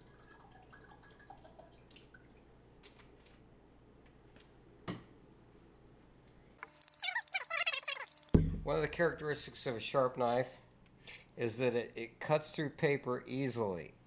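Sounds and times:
liquid dripping into a jar: 0.0 - 2.5
low room hum: 0.0 - 7.8.

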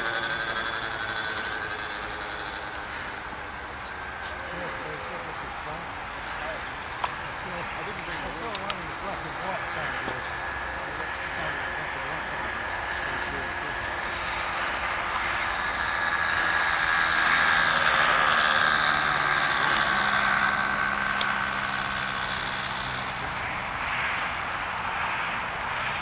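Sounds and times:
model airplane engine: 0.0 - 26.0.

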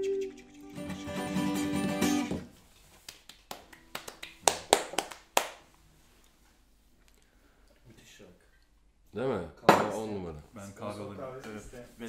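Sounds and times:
acoustic guitar strumming: 0.0 - 2.4
hand claps: 3.0 - 5.6.

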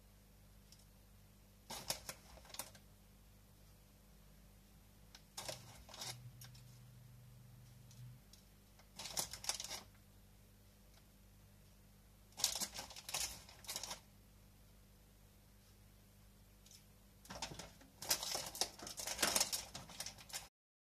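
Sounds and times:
plastic bag crinkling and rattling: 1.7 - 2.8, 5.3 - 6.6, 8.8 - 10.0, 12.4 - 14.1, 16.7 - 20.5.

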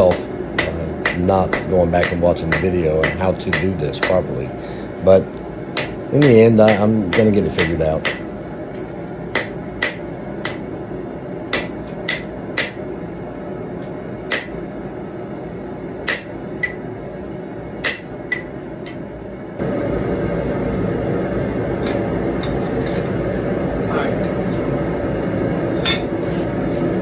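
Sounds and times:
hammer striking hot metal on anvil: 0.0 - 4.4, 5.7 - 8.5, 9.3 - 10.6, 11.5 - 12.8, 14.3 - 14.6, 16.1 - 16.8, 17.8 - 18.5, 21.8 - 23.2
loud rushing hum: 19.6 - 22.4.

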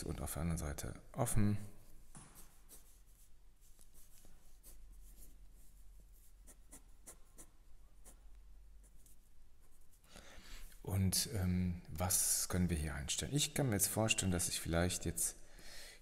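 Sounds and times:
pen scratching on paper: 2.4 - 8.2.

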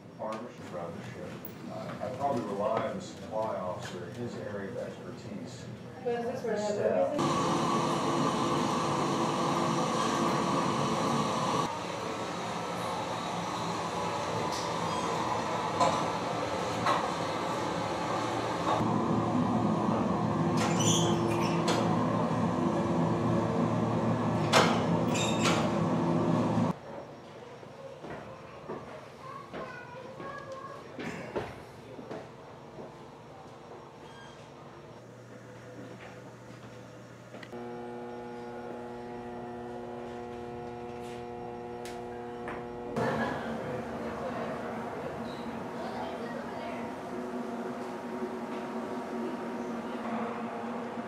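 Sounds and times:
laundry machinery hum: 0.0 - 26.8, 34.6 - 51.0
steam hissing from press: 7.2 - 26.3.

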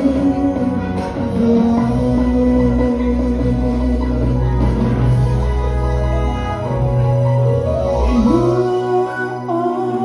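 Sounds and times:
man singing into microphone: 0.0 - 5.0, 8.0 - 10.0
instrumental accompaniment: 0.0 - 10.0.

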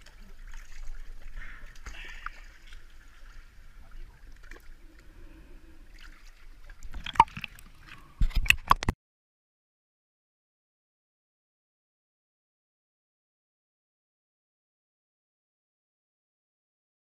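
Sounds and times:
water sloshing against boat hull: 0.0 - 5.2.

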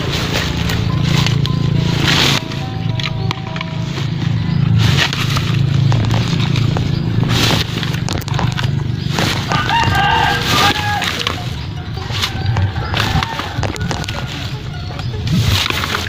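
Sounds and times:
coconuts knocking into a sack: 5.0 - 11.5, 12.2 - 14.5
rooster crowing: 9.4 - 15.0.

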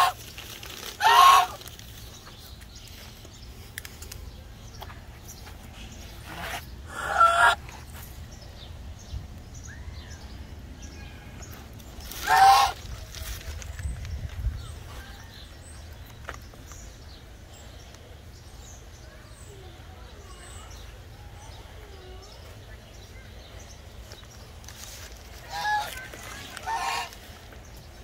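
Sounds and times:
large bird calling loudly: 0.0 - 1.8, 6.2 - 7.7, 11.1 - 13.0, 25.4 - 27.4
small birds chirping: 0.0 - 28.0.

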